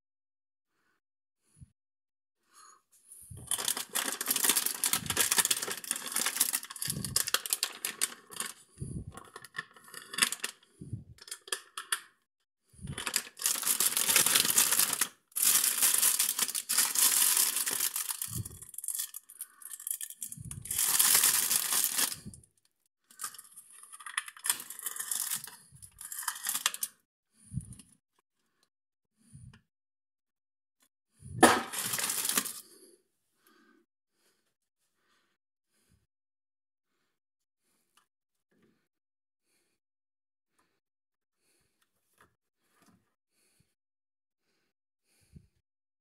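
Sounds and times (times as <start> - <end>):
plastic bags rustling: 3.5 - 8.5, 12.9 - 19.2, 20.6 - 22.2, 31.4 - 32.6.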